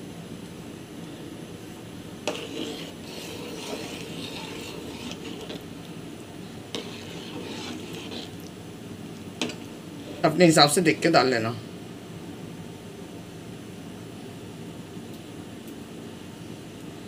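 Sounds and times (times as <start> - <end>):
spoon scraping metal pot: 2.3 - 5.7, 6.7 - 8.5.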